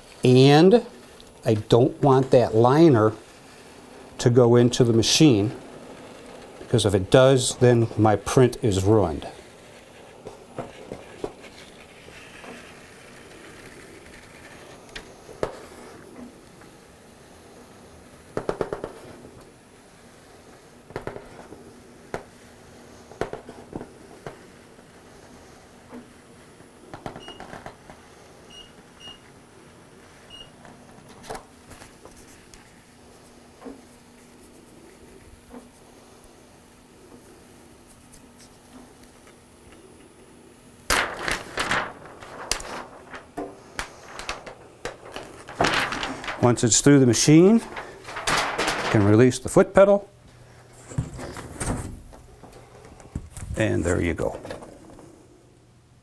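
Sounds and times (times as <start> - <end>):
paper liner crackling: 0.0 - 16.8, 38.2 - 54.4
laminator hum: 0.0 - 56.0.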